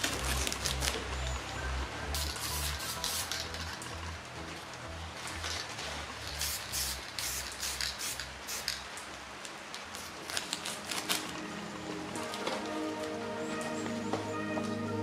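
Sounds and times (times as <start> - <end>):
paper rustling: 0.0 - 1.1, 9.8 - 11.5.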